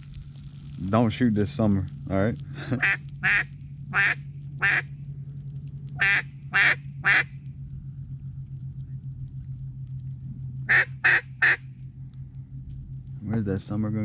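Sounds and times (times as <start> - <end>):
steady low hum: 0.0 - 14.0
duck quacking: 2.8 - 4.8, 6.0 - 7.3, 10.7 - 11.6.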